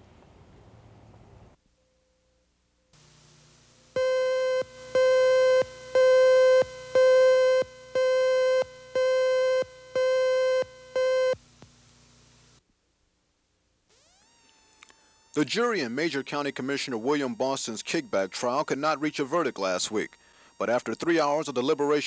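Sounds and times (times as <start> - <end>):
faint low hum: 0.0 - 22.0
buzzy electronic beeps: 3.9 - 11.4, 13.9 - 22.0.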